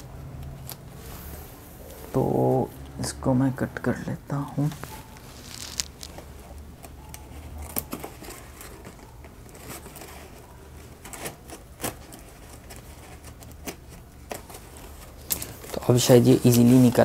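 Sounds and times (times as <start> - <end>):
plastic crinkling: 4.6 - 17.0.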